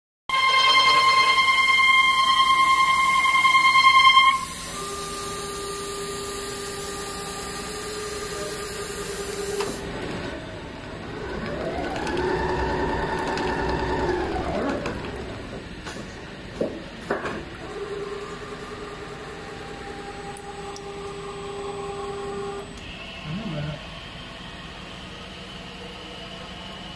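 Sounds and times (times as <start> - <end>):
machine motors whining: 0.3 - 16.6, 17.4 - 26.9
sewing head moving whine: 11.0 - 15.7.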